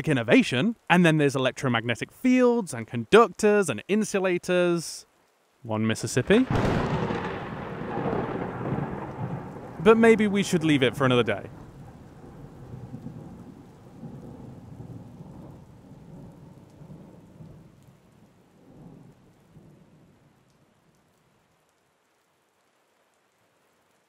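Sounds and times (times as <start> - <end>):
steady rain: 0.0 - 24.0
thunder rumbling: 6.2 - 20.4.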